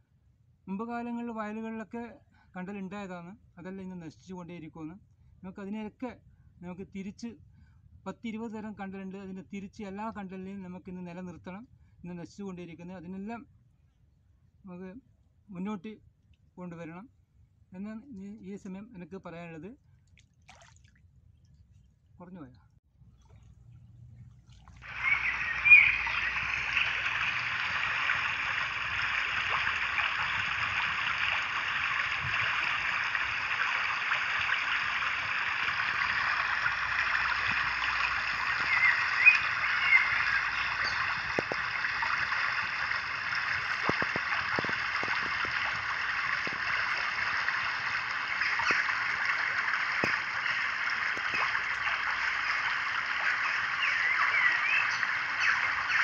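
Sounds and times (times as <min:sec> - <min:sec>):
water splash: 0:20.2 - 0:21.0, 0:24.3 - 0:56.0
rushing stream water: 0:24.8 - 0:56.0.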